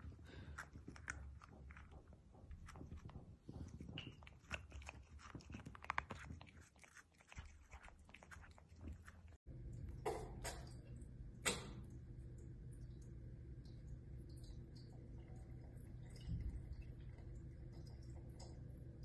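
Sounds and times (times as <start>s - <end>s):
cat licking bottle: 0.0s - 9.4s.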